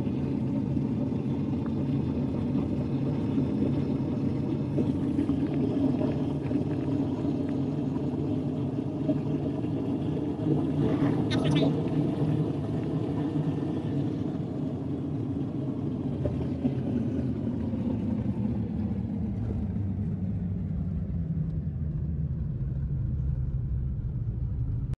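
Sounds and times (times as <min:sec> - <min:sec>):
car road and engine rumble: 0:14.0 - 0:25.0.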